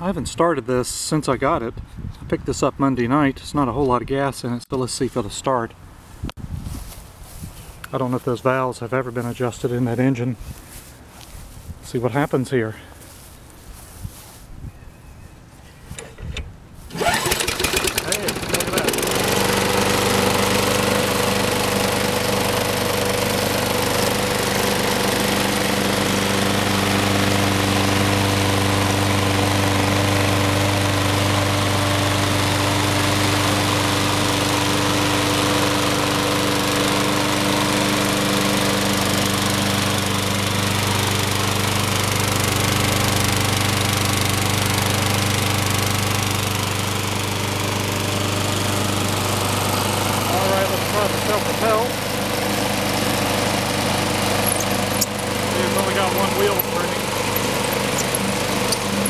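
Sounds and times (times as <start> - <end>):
lawn mower engine running: 10.4 - 11.6, 15.9 - 59.0.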